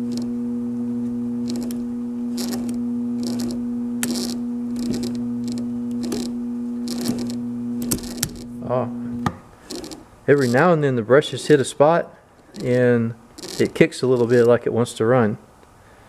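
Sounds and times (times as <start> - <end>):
scratchy clicks of turning shaft: 0.0 - 0.4, 1.0 - 8.6, 9.2 - 10.8, 12.4 - 14.7
electric motor humming: 0.0 - 10.8, 12.5 - 14.6.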